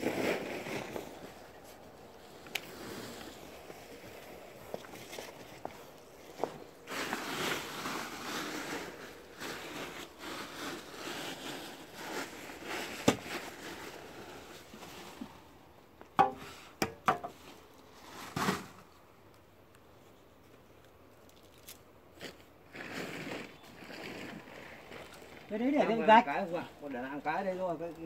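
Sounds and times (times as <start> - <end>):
shovel scraping through soil: 0.0 - 5.7, 6.3 - 15.2, 17.9 - 18.9.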